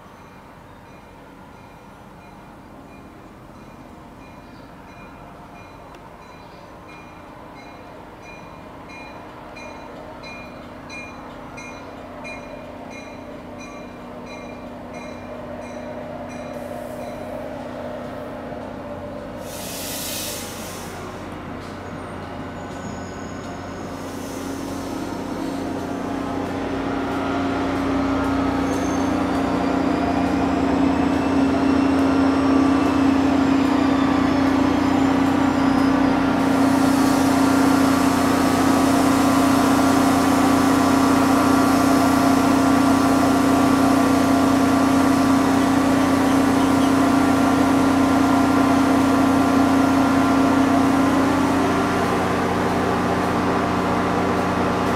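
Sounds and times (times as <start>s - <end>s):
hiss: 19.4s - 21.2s, 23.9s - 25.8s, 36.4s - 40.9s
faint high squeals: 21.8s - 25.9s, 28.6s - 30.0s
diesel engine droning: 26.0s - 54.9s.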